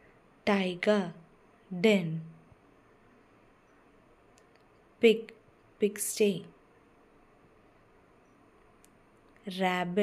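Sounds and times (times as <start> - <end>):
faint steady hiss: 0.0 - 10.0
person narrating: 0.5 - 2.4, 5.0 - 6.5, 9.5 - 10.0.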